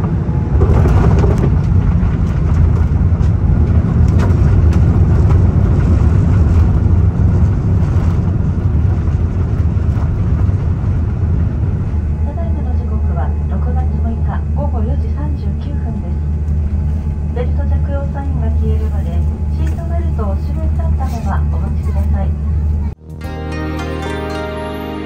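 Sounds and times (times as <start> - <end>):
wheels rumbling on runway: 0.0 - 23.0.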